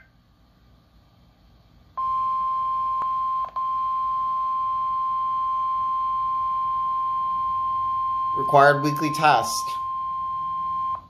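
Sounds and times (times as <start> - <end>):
steady high alert tone: 8.2 - 10.4.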